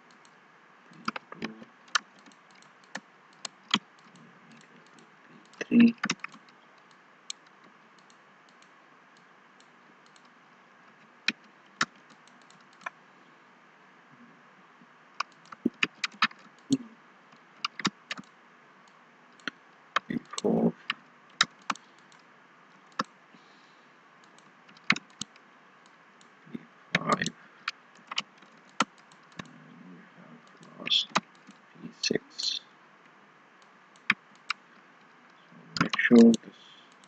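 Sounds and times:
computer mouse clicks: 0.1s - 10.3s, 11.2s - 13.0s, 15.2s - 23.1s, 24.2s - 26.3s, 27.0s - 29.6s, 30.4s - 31.6s, 33.6s - 34.6s, 35.8s - 37.0s
keyboard keystrokes: 4.8s - 6.4s, 17.6s - 18.3s.

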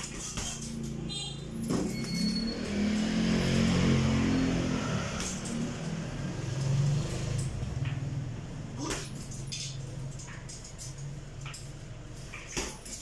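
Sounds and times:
chain clinking: 8.8s - 11.8s, 12.6s - 13.0s.

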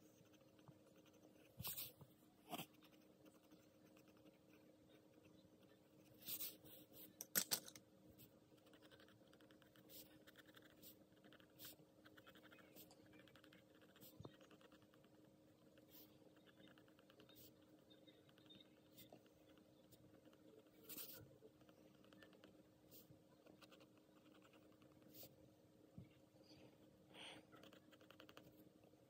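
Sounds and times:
pencil scratching on paper: 0.0s - 4.5s.

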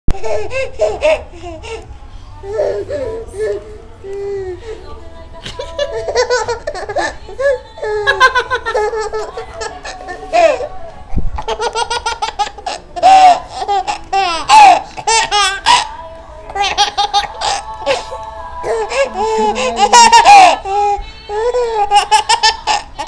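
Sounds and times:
baby giggling: 5.5s - 10.7s, 11.4s - 15.9s, 18.7s - 23.0s.

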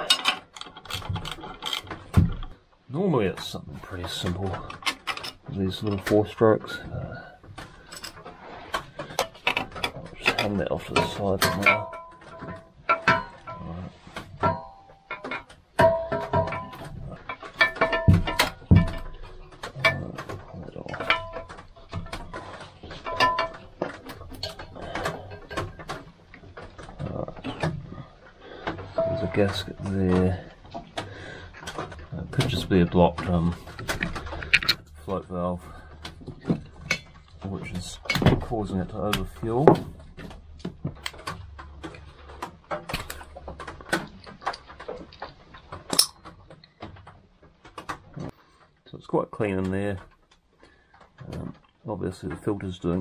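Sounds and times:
metallic clicks and rattles: 0.0s - 53.0s
sharp metal knocks: 9.0s - 26.9s, 28.9s - 30.4s, 45.8s - 46.4s.

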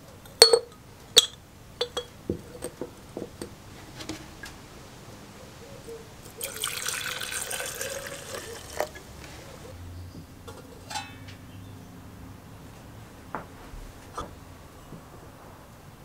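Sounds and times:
gasoline splashing into cup: 6.4s - 9.0s.

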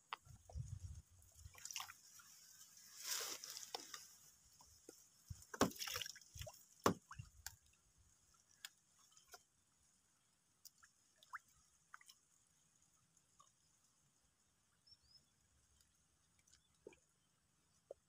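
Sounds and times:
water sloshing and dripping: 0.6s - 9.6s, 10.6s - 12.4s
small sharp splashes: 1.4s - 2.3s, 5.3s - 7.8s, 10.6s - 12.3s.

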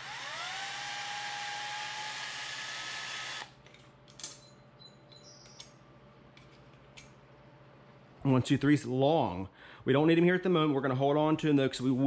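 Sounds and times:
power drill whining: 0.0s - 3.6s.

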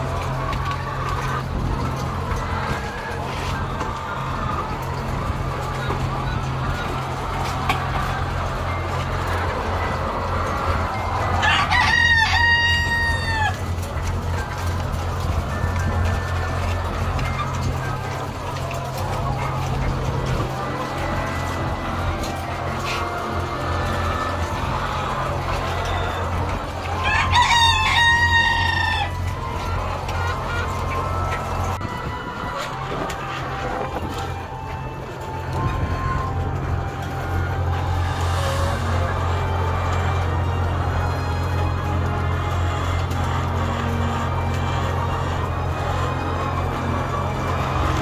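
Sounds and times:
chicken crowing: 0.0s - 48.0s
hens clucking: 0.0s - 48.0s
chicken crow-like call: 11.0s - 13.6s.

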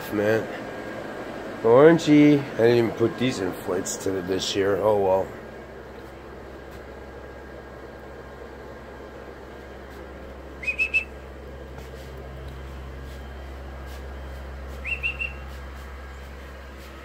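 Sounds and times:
steady low hum: 0.0s - 17.0s
high whistled chirps: 10.6s - 11.2s, 14.7s - 15.6s.

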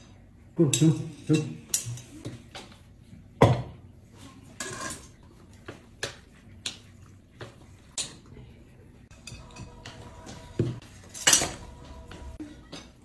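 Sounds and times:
chopsticks and dishes clinking: 0.6s - 2.4s, 4.6s - 5.2s, 7.9s - 8.3s, 9.1s - 13.0s.

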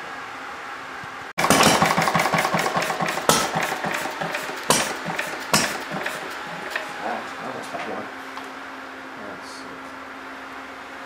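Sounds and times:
sharp engine cracks: 1.4s - 7.0s
single-cylinder engine firing knocks: 1.4s - 7.0s.

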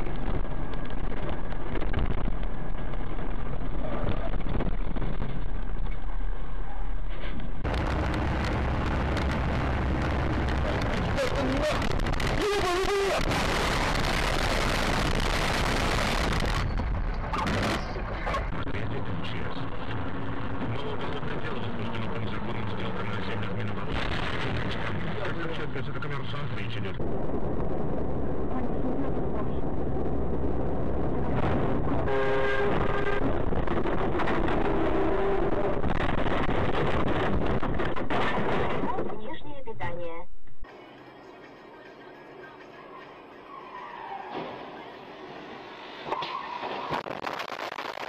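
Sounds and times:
vehicle running noise in cab: 0.0s - 23.8s
road and wind noise: 0.0s - 48.0s
vehicle horn: 32.0s - 33.3s.

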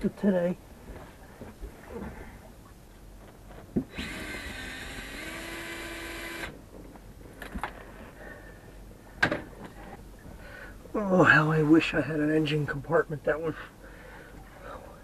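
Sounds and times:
cordless drill running: 3.9s - 6.5s.

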